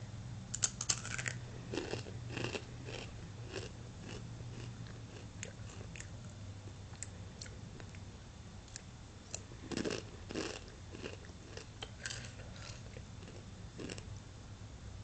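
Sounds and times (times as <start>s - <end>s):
tortilla chips crunching: 0.6s - 6.1s, 9.7s - 14.0s.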